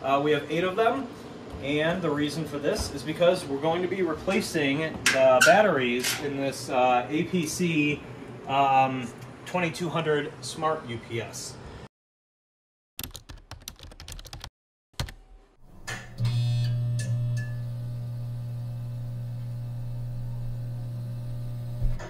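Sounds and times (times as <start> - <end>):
keyboard typing: 13.0 - 15.2.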